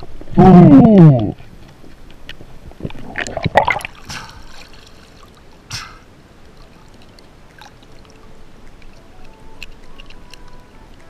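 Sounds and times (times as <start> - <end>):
water trickling and lapping: 1.4 - 11.0
water splash: 2.9 - 8.9.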